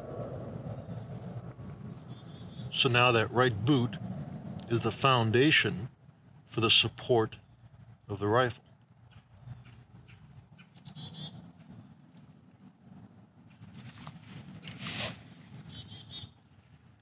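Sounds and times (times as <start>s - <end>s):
faint low rumble: 0.0s - 17.0s
birds chirping trills: 1.9s - 3.3s, 6.1s - 13.0s, 15.5s - 16.5s
brief rustle: 13.6s - 15.3s.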